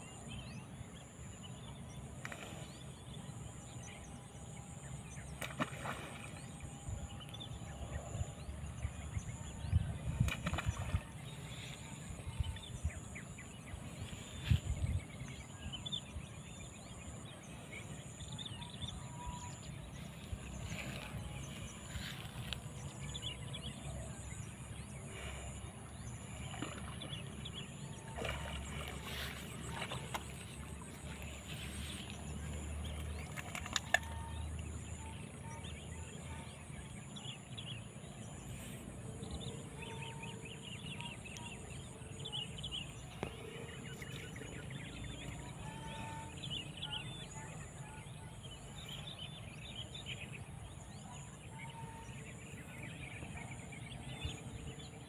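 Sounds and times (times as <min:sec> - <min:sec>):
outdoor background: 0:00.0 - 0:55.0
muddy water sloshing: 0:05.3 - 0:36.9.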